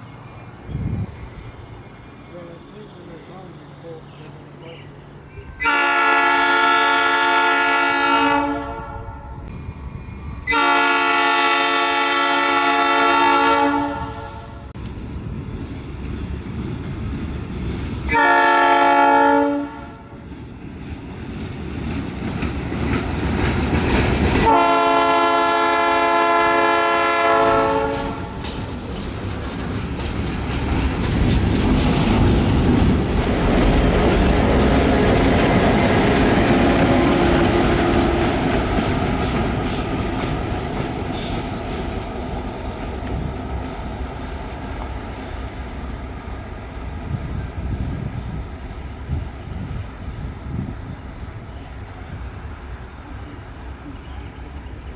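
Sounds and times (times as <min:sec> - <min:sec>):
train horn blasts: 0:05.4 - 0:09.5, 0:10.5 - 0:14.7, 0:18.1 - 0:20.1, 0:24.4 - 0:28.4
train wheels clacking: 0:15.5 - 0:18.5, 0:20.1 - 0:24.8, 0:27.3 - 0:48.4.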